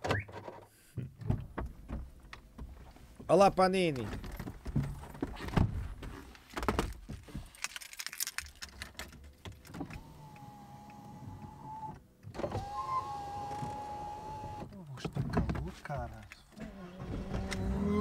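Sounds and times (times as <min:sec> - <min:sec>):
handling clicks and rustles: 0:03.8 - 0:10.0
small electric motor whining: 0:17.0 - 0:18.0.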